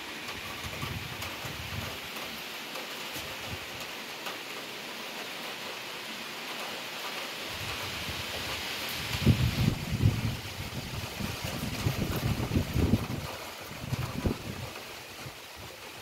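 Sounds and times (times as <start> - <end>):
heavy rain falling: 0.0 - 16.0
wind buffeting microphone: 0.3 - 2.2, 7.5 - 16.0.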